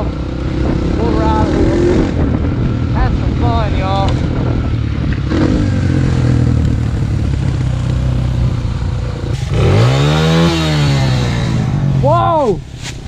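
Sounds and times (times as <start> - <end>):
dirt bike engine running: 0.0 - 12.3.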